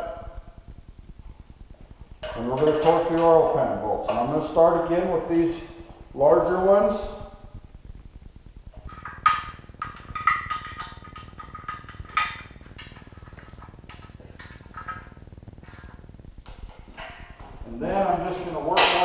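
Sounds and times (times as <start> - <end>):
torque wrench clicking: 8.9 - 17.1.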